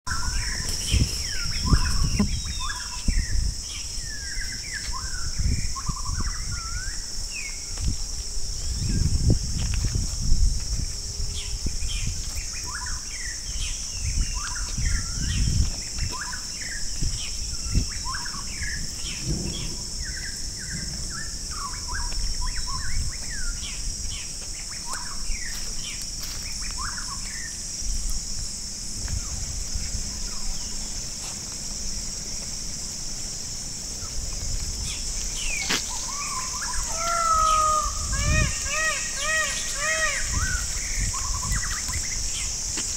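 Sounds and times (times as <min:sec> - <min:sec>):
birds chirping: 0:00.1 - 0:07.6, 0:33.9 - 0:42.7
high-pitched insect drone: 0:00.1 - 0:42.9
low rumbles: 0:17.0 - 0:24.0
loud wavering bird call: 0:35.5 - 0:41.8.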